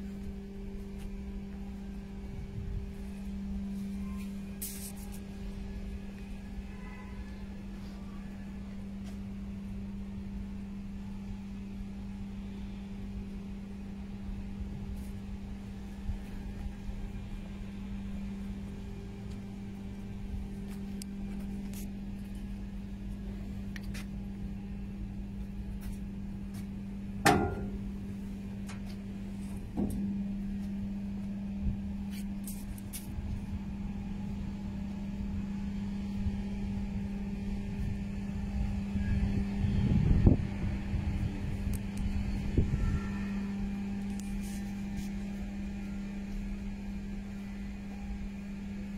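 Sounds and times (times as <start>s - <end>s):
steady mechanical hum: 0.0s - 48.9s
sharp knock: 27.3s - 27.8s.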